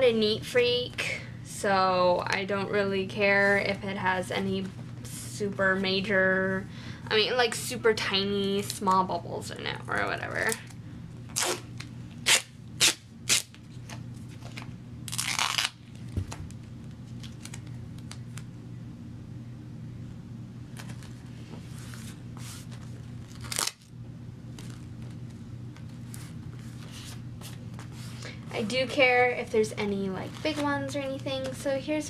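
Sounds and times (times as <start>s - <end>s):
tape rustling: 10.4s - 18.5s, 20.7s - 23.9s, 24.5s - 31.7s
duct tape crackling and tearing: 11.3s - 18.5s, 22.7s - 23.9s.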